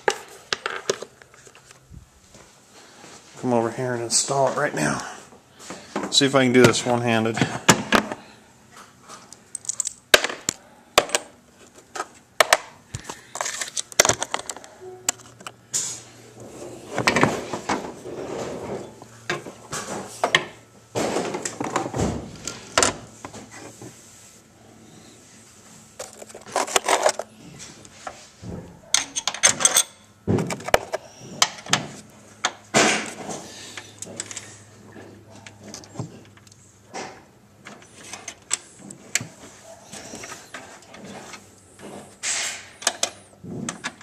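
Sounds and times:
metal hardware clinking and rattling: 9.4s - 10.1s, 28.9s - 30.8s.

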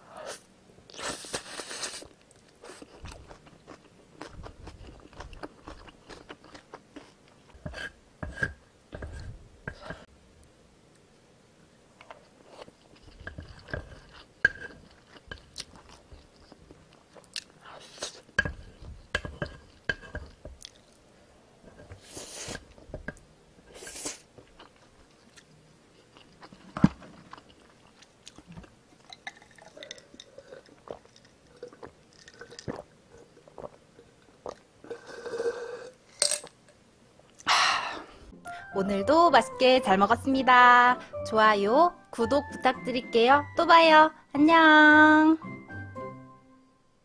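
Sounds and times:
chewing noodles: 0.9s - 7.6s, 12.0s - 21.0s, 23.7s - 35.5s
wooden spoon scraping a plate: 7.6s - 10.1s, 12.6s - 15.4s, 18.4s - 20.4s.

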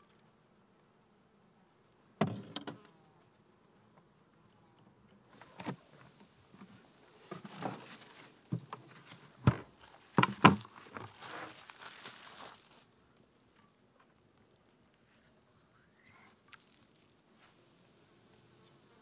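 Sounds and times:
crinkling and rustling: 5.3s - 12.9s, 16.1s - 17.6s.

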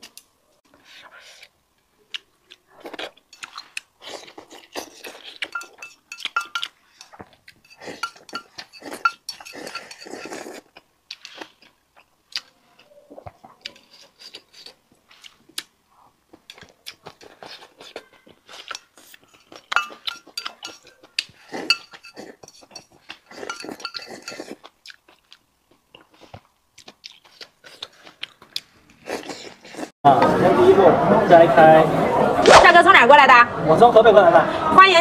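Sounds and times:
wet chewing: 0.9s - 29.9s
chopsticks clicking on ceramic bowl: 5.4s - 6.7s.

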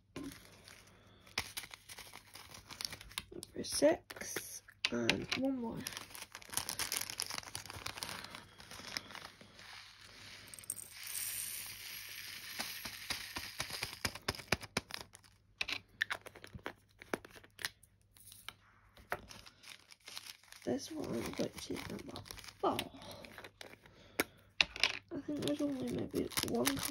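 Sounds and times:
plastic rustling: 0.0s - 3.4s, 5.0s - 11.2s, 19.1s - 23.9s, 25.2s - 26.9s
plastic bags crinkling: 0.1s - 3.4s, 5.0s - 11.4s, 19.1s - 26.9s.

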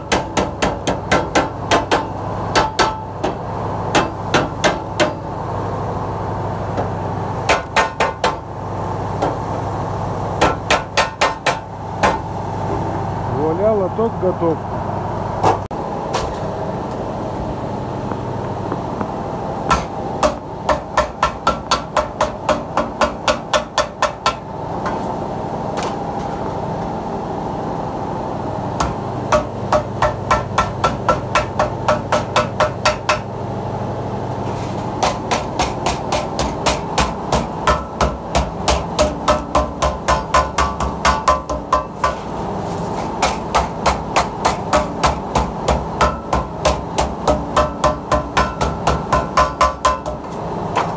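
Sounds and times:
wooden mallet beating sheet steel: 0.0s - 5.2s, 7.5s - 8.4s, 10.4s - 12.2s, 19.7s - 25.0s, 28.8s - 33.3s, 35.0s - 42.3s, 43.2s - 50.9s.

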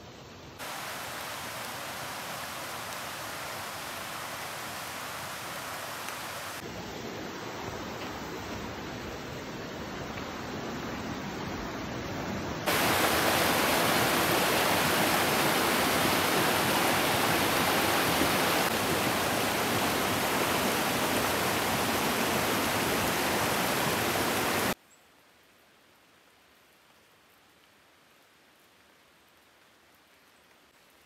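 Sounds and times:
creek water rushing over rocks: 0.6s - 11.4s, 12.7s - 24.8s.

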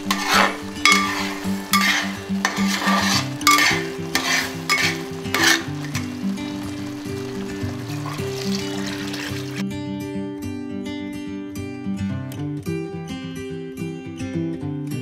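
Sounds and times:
metal spatula scraping a pot: 0.0s - 9.6s
background music: 0.0s - 15.0s.

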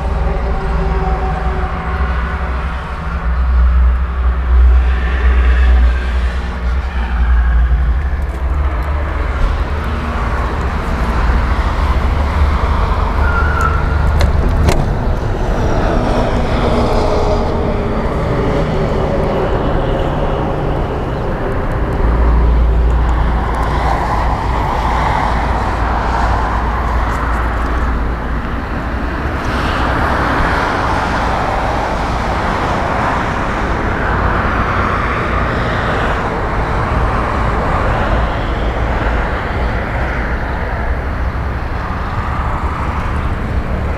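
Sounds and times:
deep low rumble: 0.0s - 30.2s
faint passing vehicles: 0.0s - 43.9s
road traffic noise: 0.0s - 43.9s.

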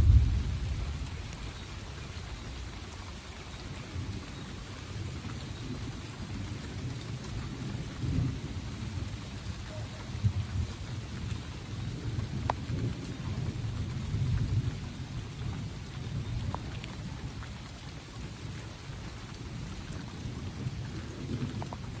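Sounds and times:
low rumble: 0.0s - 1.4s.

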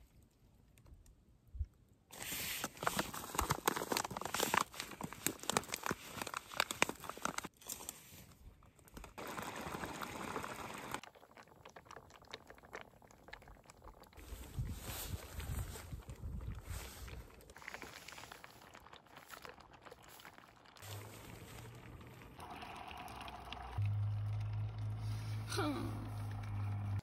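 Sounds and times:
plastic foil pouch crinkling: 2.2s - 8.0s.

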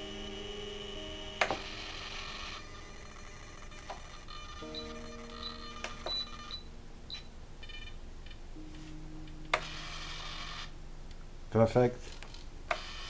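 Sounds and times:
short high beeps: 4.6s - 7.8s.

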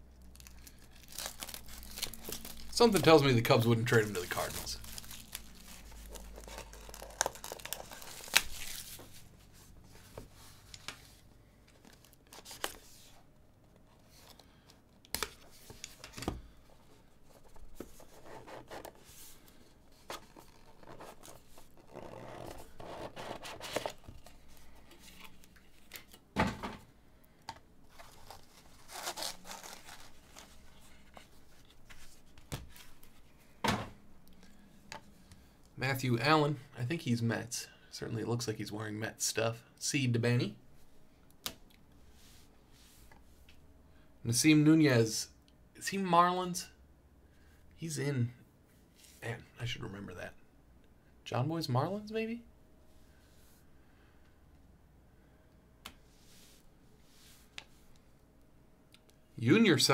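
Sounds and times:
plastic shrink wrap crinkling: 0.2s - 9.1s, 27.9s - 30.8s.

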